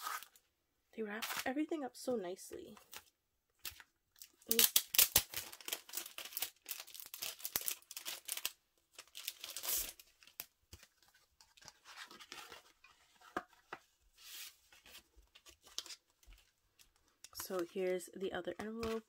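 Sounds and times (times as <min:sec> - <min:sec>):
envelope paper tearing: 0:04.5 - 0:10.0.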